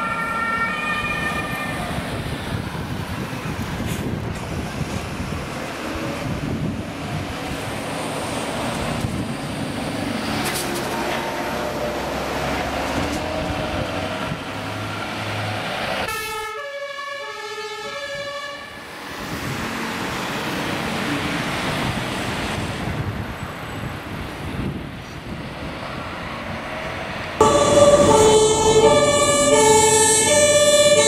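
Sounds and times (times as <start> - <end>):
two-tone siren: 0.0 - 2.0, 16.1 - 18.8, 27.4 - 31.0
ambulance driving past: 0.0 - 23.8, 25.6 - 31.0
heavy diesel engine and tyres: 0.0 - 31.0.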